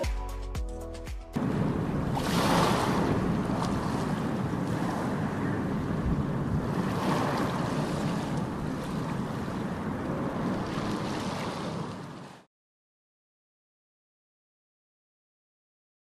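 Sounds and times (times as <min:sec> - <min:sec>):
wind noise on microphone: 0:01.4 - 0:11.7
sea waves washing: 0:01.4 - 0:12.5.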